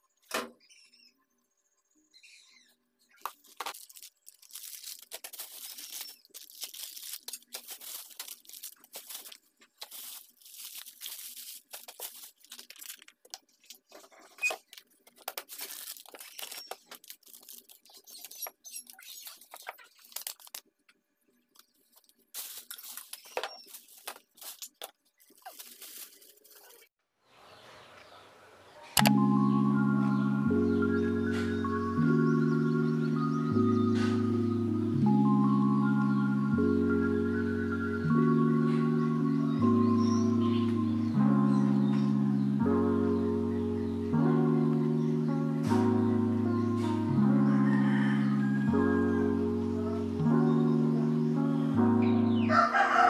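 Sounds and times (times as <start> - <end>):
rustling and crinkling packaging: 3.1 - 20.8, 21.5 - 26.9.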